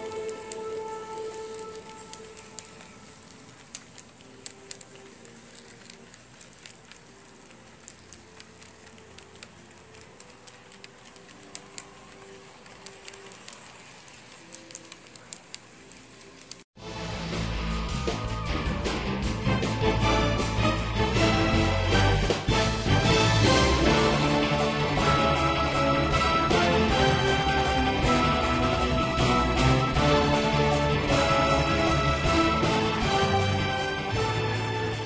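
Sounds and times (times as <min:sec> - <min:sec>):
model train rolling: 0:00.0 - 0:16.6
loud music: 0:16.8 - 0:35.0.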